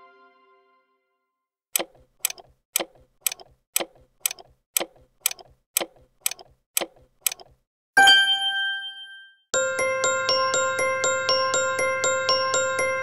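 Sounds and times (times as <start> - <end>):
clock ticking: 1.7 - 7.6
chime: 8.0 - 13.0.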